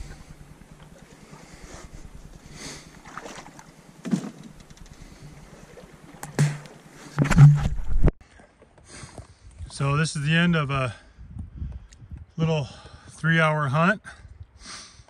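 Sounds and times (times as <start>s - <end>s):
paddle strokes in water: 0.0s - 9.3s
paddle knocking against hull: 2.3s - 8.1s.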